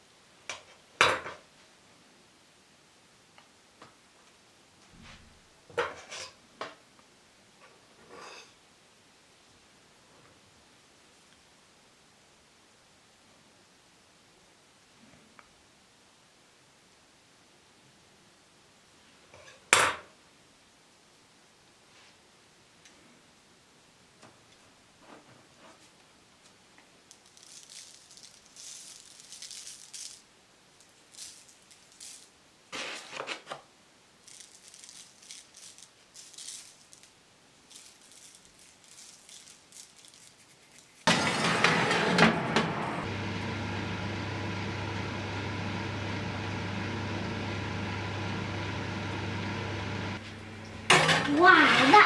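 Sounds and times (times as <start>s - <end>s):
faint rustling and handling: 21.8s - 23.2s, 24.4s - 41.1s
sudden clatter: 41.1s - 43.1s
mechanical hum with low drone: 41.1s - 51.3s.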